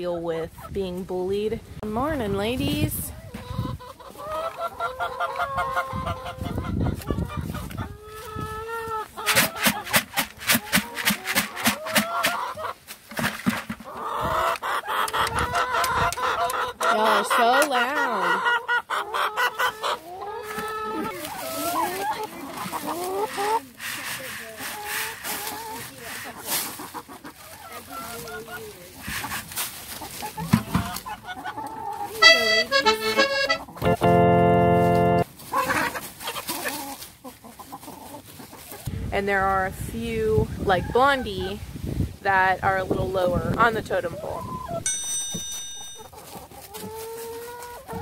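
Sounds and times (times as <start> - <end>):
chickens clucking: 0.2 - 48.0
harsh squawking call: 32.2 - 33.8
organ-like musical effect: 32.2 - 35.2.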